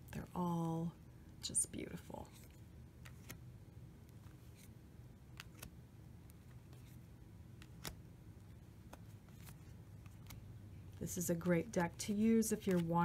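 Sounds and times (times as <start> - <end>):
low room hum: 0.0 - 13.0
cards clicking: 2.4 - 3.4, 5.3 - 7.0, 7.6 - 8.0, 8.8 - 10.4, 11.7 - 13.0.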